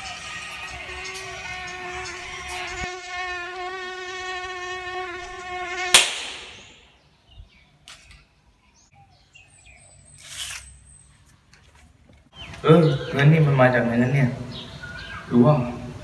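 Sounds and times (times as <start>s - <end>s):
mosquito whine: 0.0s - 6.0s
sharp hand clap: 5.9s - 6.8s.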